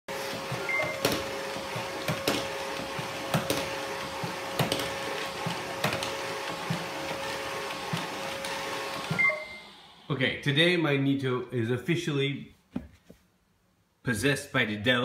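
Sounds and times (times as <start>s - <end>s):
robot vacuum motor whine: 0.1s - 10.2s.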